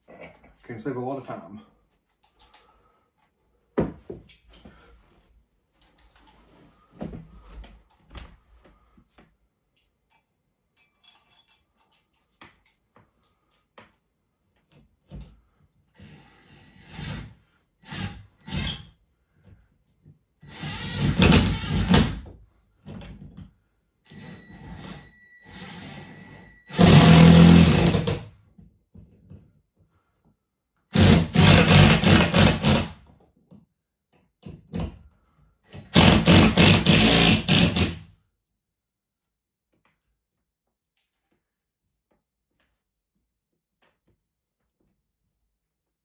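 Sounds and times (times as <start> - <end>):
cordless drill boring: 20.5 - 22.2, 24.1 - 28.2, 31.0 - 32.9, 35.9 - 38.0.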